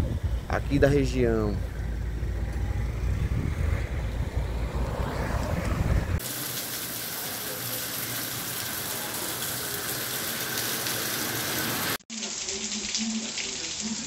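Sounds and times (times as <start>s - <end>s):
low rumble: 0.0s - 6.2s
heavy rain pouring: 6.2s - 14.0s.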